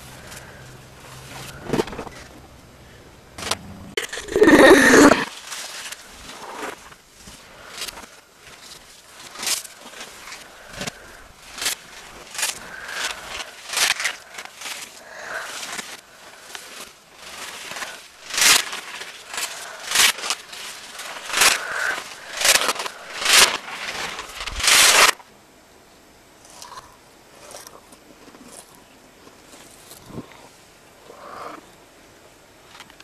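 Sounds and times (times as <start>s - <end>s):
paper crumpling and tearing: 3.4s - 7.0s, 7.6s - 25.2s.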